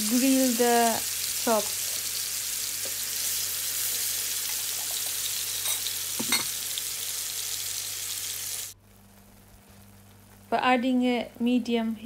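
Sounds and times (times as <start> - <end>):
meat sizzling in oil: 0.0 - 9.0.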